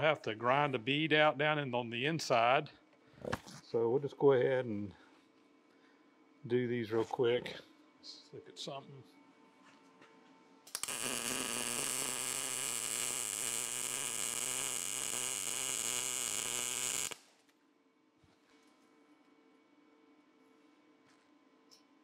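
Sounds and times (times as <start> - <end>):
faint hum: 0.0 - 22.0
arc welding buzz: 10.7 - 17.4.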